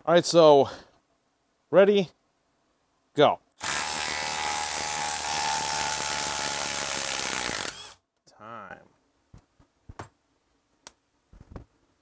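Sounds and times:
impact driver hammering screw: 3.6 - 8.0.

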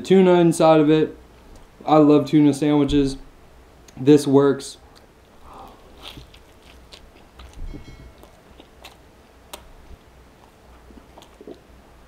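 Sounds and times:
wet chewing: 4.9 - 12.0
loud bite: 5.0 - 9.7.

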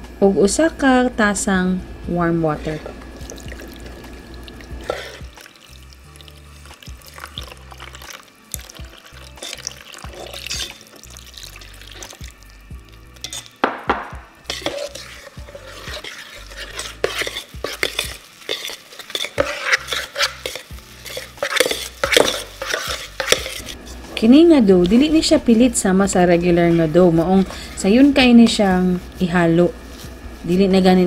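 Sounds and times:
utensil scraping metal bowl: 2.5 - 3.1, 4.8 - 5.4, 6.3 - 12.2, 13.1 - 13.6, 14.4 - 29.1.

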